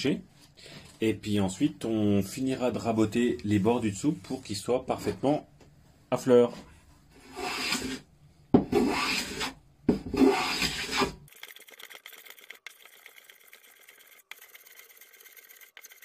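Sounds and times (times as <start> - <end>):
hand plane rasping on wood: 7.2 - 8.0, 8.7 - 9.5, 10.1 - 11.1.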